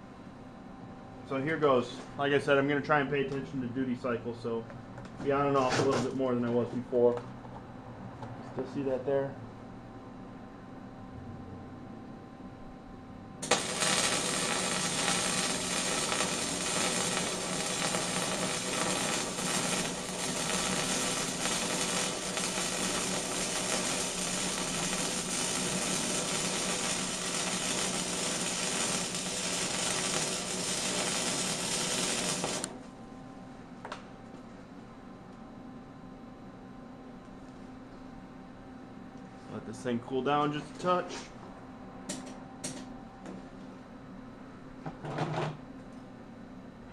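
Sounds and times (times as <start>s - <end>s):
welder arc crackling and sizzling: 13.4s - 32.9s.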